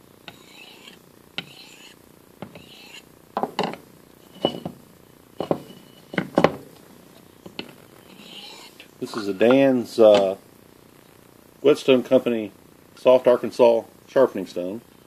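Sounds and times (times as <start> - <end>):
blade rasping on whetstone: 0.3 - 3.1, 4.2 - 4.8, 8.0 - 9.3.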